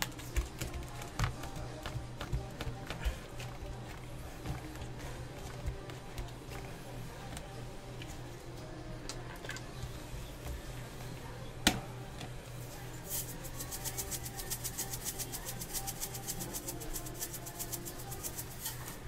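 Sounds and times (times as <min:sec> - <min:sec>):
seeds rattling in a shaker: 0:13.0 - 0:19.0.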